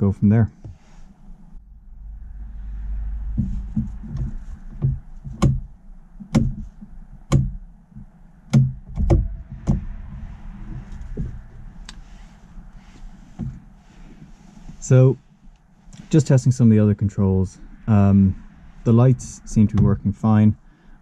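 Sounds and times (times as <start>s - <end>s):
sharp clicks and knocks: 3.3s - 12.0s.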